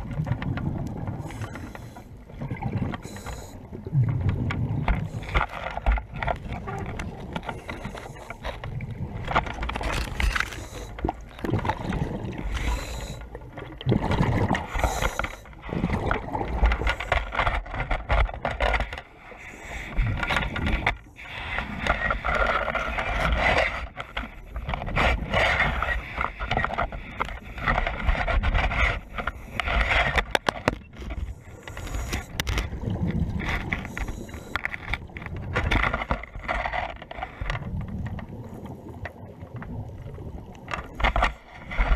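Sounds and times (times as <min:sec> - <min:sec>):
water rushing underwater: 0:00.0 - 0:17.8, 0:37.3 - 0:41.9
knocks and scrapes: 0:04.2 - 0:13.2.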